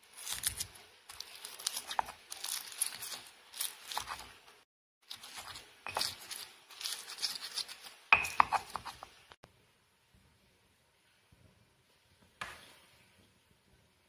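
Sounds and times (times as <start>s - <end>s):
pestle grinding in stone mortar: 0.1s - 4.4s, 5.1s - 9.1s.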